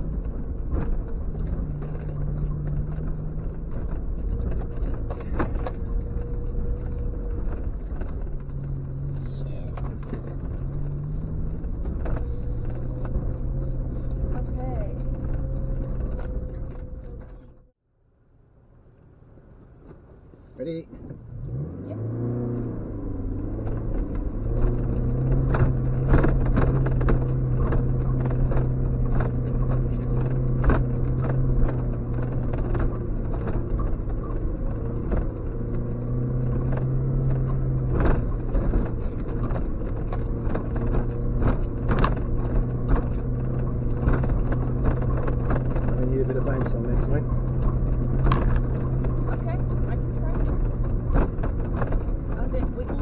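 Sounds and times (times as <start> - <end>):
car engine pulling away: 0.0 - 17.7, 18.6 - 53.0.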